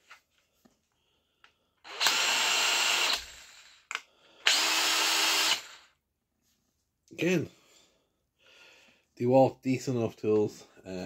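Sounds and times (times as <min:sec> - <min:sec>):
power drill running free: 0:01.8 - 0:06.0.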